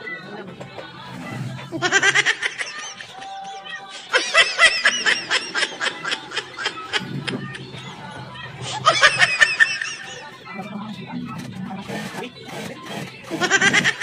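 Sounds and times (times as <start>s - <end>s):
laughter in rapid bursts: 1.7s - 10.6s, 13.3s - 14.0s.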